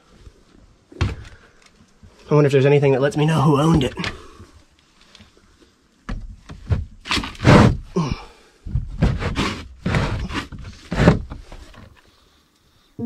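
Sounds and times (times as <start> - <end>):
wooden doors scraping on tracks: 7.1 - 7.8, 9.0 - 11.9.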